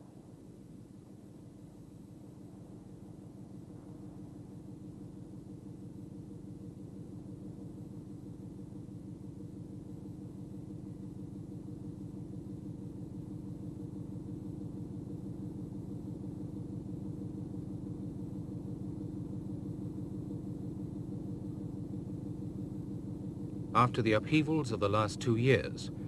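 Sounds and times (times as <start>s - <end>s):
low throbbing mechanical drone: 2.4s - 7.7s, 9.5s - 26.0s.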